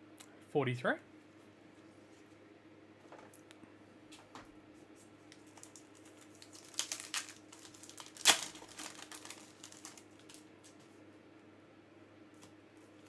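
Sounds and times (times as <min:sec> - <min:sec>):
foil wrapper crinkling: 0:05.3 - 0:10.8
foil pack ripping: 0:05.4 - 0:10.8.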